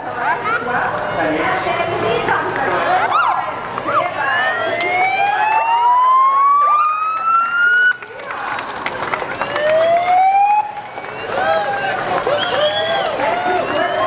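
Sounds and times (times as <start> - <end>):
faint crowd voices: 0.0 - 14.0
siren rising wail: 3.1 - 8.0, 9.4 - 14.0.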